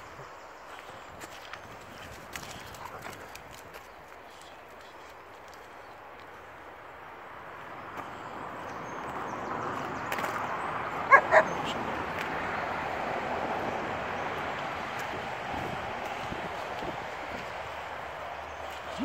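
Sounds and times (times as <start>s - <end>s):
dog barking: 11.1s - 11.6s.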